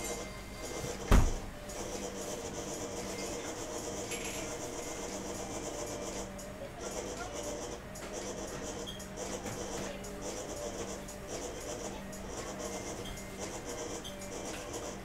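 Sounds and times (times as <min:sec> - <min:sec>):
kitchen machinery humming: 0:00.0 - 0:15.0
heavy thump: 0:01.1 - 0:01.5.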